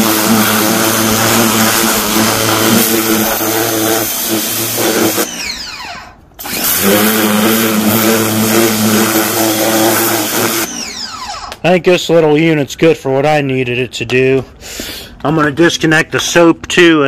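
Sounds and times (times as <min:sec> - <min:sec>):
pressure washer motor humming: 0:00.0 - 0:11.6.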